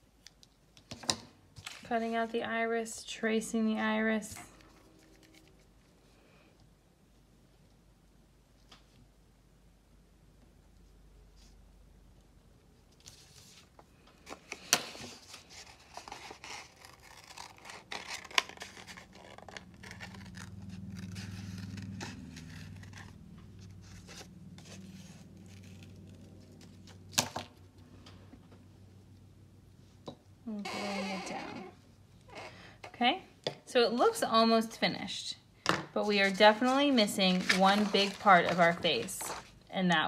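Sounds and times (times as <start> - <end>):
paper rustling: 4.5 - 5.9, 12.9 - 27.6, 36.0 - 40.0
scissors snipping paper: 15.6 - 23.2
low hum: 19.4 - 29.8.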